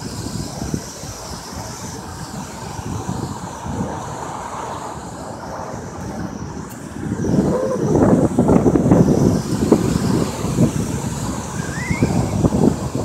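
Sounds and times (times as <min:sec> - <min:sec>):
car road noise: 0:00.0 - 0:13.0
wind buffeting microphone: 0:00.0 - 0:13.0.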